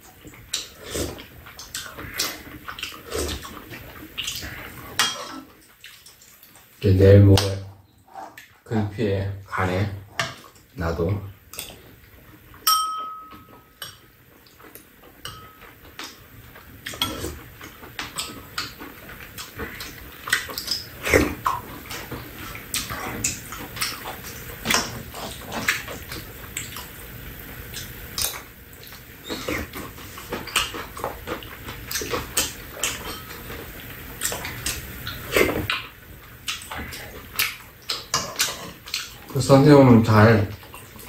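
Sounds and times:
chewing and slurping: 0:00.0 - 0:06.8, 0:13.4 - 0:39.4, 0:40.5 - 0:41.0
spoons clinking against bowls: 0:05.0 - 0:05.4, 0:12.6 - 0:14.0, 0:15.2 - 0:15.7, 0:33.0 - 0:33.4.

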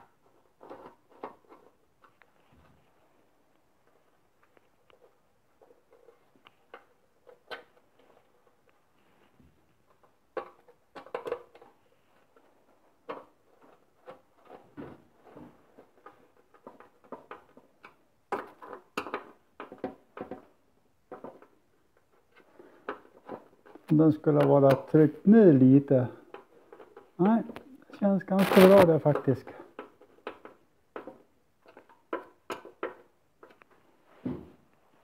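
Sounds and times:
small parts and screws clicking: 0:09.8 - 0:14.7, 0:15.7 - 0:25.0, 0:28.3 - 0:33.8.

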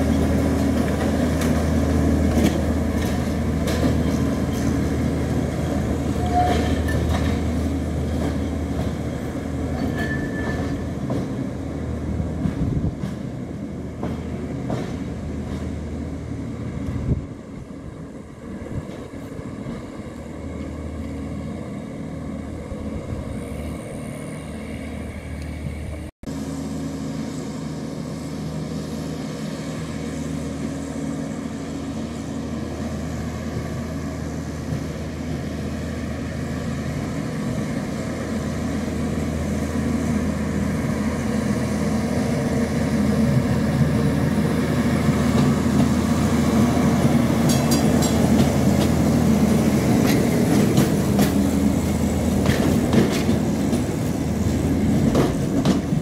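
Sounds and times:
tram running hum: 0:00.0 - 0:56.0
wheels clicking over rails: 0:47.4 - 0:56.0.

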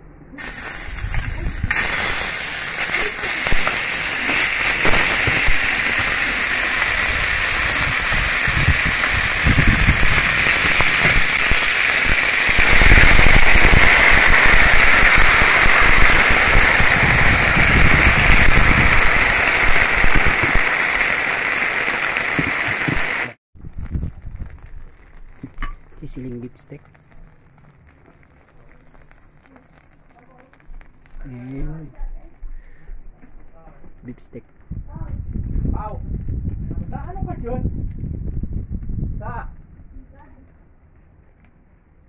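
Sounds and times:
beef sizzling on hot plate: 0:00.4 - 0:31.5.

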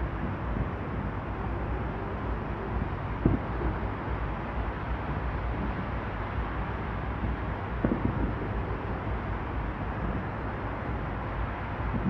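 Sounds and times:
outdoor low rumble: 0:00.0 - 0:12.0
distant fireworks bursting: 0:07.8 - 0:08.5.

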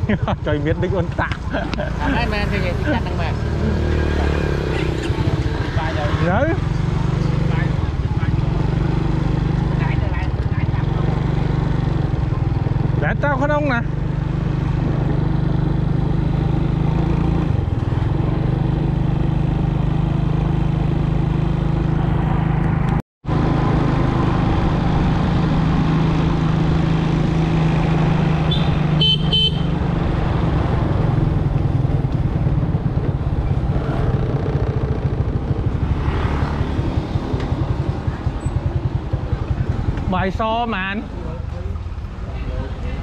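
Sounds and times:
double horn toot: 0:28.4 - 0:29.8.

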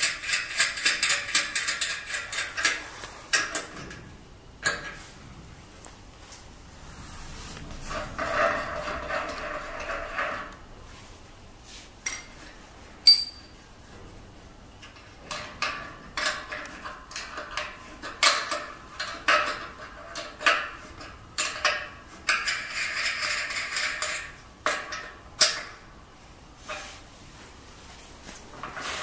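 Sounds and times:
wrench clinking on metal: 0:13.0 - 0:13.5
sharp ringing ping: 0:13.1 - 0:13.5.

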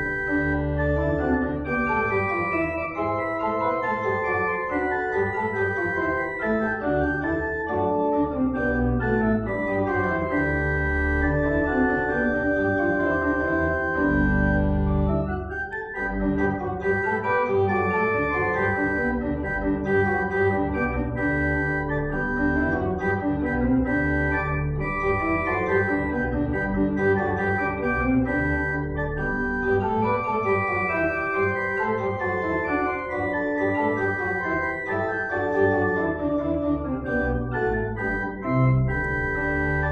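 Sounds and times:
church organ chords: 0:00.0 - 0:39.9.

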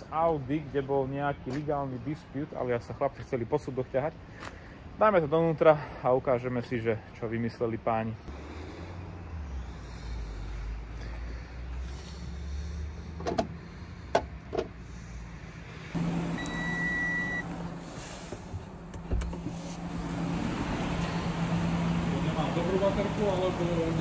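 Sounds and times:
electronic warning chime: 0:16.4 - 0:17.5.

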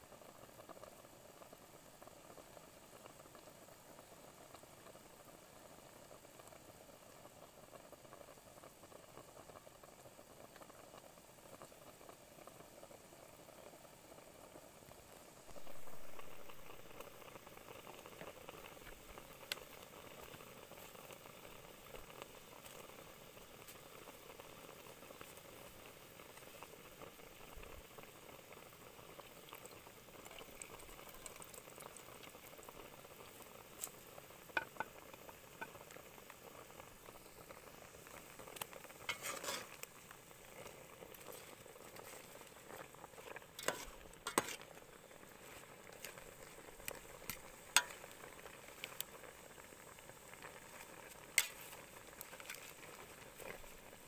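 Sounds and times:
gas stove hiss: 0:00.0 - 0:54.0
water boiling and bubbling: 0:00.0 - 0:54.0.

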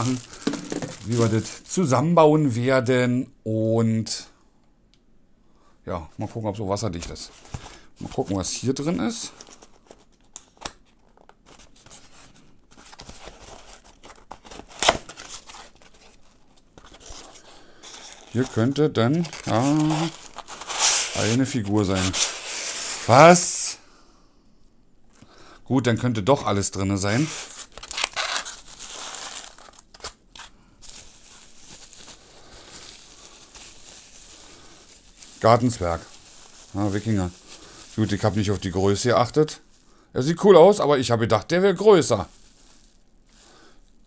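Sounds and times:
bubble wrap crinkling: 0:00.0 - 0:02.0, 0:07.0 - 0:23.4, 0:27.1 - 0:40.5, 0:41.7 - 0:44.0
cardboard ripping: 0:12.9 - 0:16.2.

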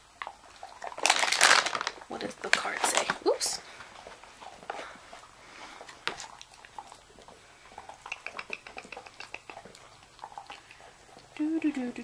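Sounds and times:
dog chewing clicks and smacks: 0:00.1 - 0:03.2, 0:05.8 - 0:12.0.

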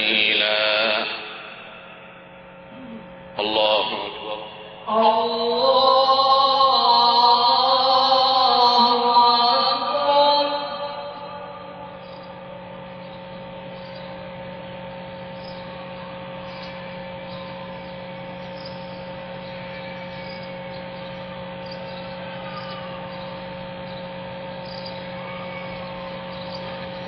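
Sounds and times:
sound system hum and hiss: 0:00.0 - 0:27.0
constant tones: 0:09.8 - 0:27.0.

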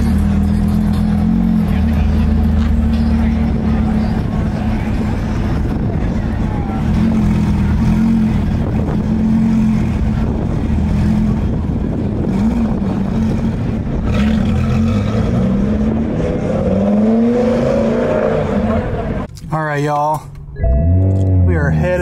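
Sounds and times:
car engine idling and revving: 0:00.0 - 0:22.0.

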